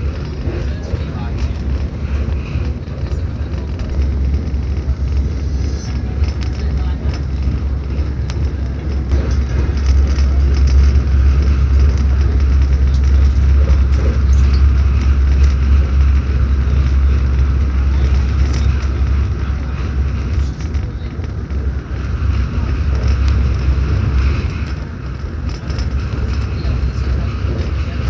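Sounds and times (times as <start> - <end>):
train cabin rumble and hiss: 0.0 - 28.0.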